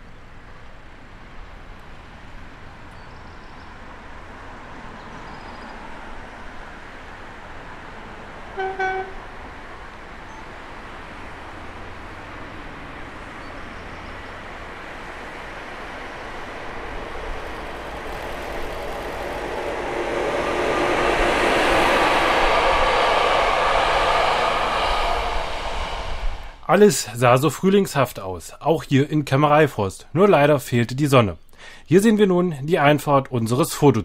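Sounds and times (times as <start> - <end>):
train passing on rails: 0.0 - 30.2
short tone: 8.6 - 9.3.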